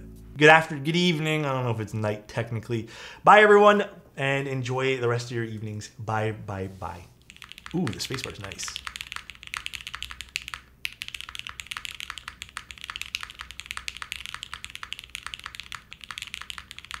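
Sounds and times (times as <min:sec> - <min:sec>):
fast typing on mechanical keyboard: 0:07.3 - 0:17.0.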